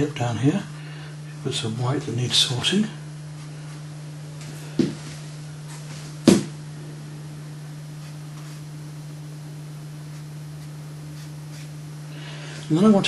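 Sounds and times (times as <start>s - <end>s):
steady low hum: 0.0s - 13.0s
knocks on work table: 6.3s - 6.6s.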